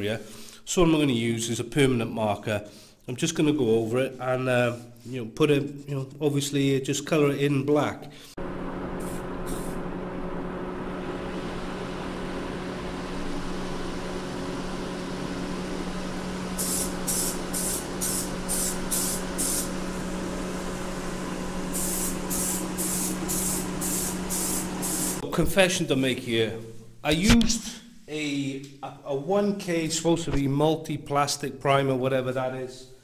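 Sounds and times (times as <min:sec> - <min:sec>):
steady low hum: 0:08.4 - 0:25.6
aerosol can spraying: 0:09.0 - 0:09.8, 0:16.6 - 0:25.2.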